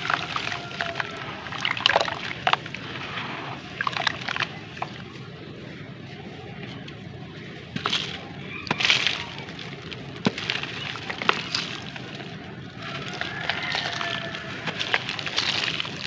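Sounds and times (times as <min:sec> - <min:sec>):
pieces snapping: 0:00.0 - 0:02.7, 0:07.8 - 0:16.0
cement lumps crunching by hand: 0:00.0 - 0:05.3, 0:06.5 - 0:16.0.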